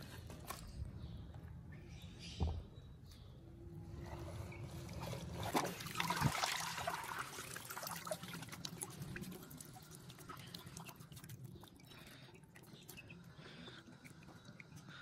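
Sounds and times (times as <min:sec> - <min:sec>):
water splashing and trickling: 0:03.9 - 0:15.0
water dripping: 0:06.0 - 0:15.0.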